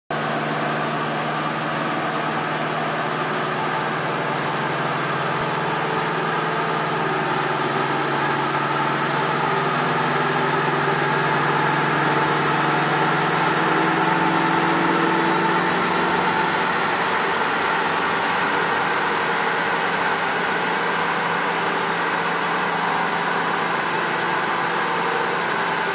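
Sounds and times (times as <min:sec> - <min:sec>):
car engine at steady speed: 0:00.1 - 0:25.9.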